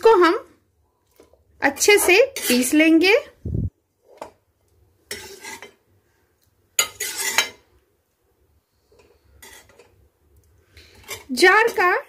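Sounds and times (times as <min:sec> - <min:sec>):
metal spatula scraping a pan: 0:01.8 - 0:03.0, 0:05.0 - 0:05.9, 0:06.8 - 0:07.7, 0:08.9 - 0:10.0, 0:10.8 - 0:11.9.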